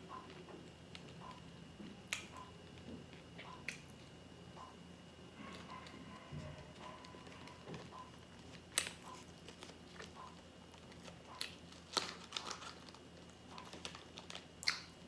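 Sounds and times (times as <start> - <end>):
cardboard sleeve crinkling and tearing: 10.7 - 14.5.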